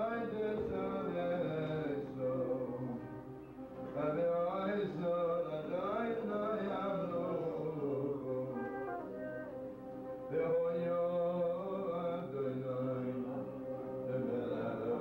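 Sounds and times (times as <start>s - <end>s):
man singing: 0.0s - 15.0s.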